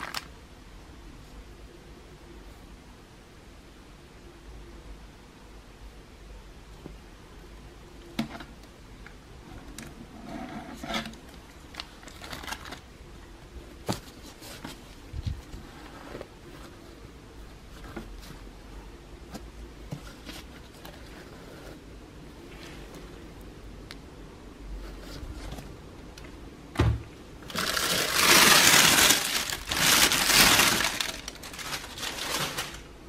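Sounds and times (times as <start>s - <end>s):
rustling and rubbing of sneaker: 13.8s - 18.6s.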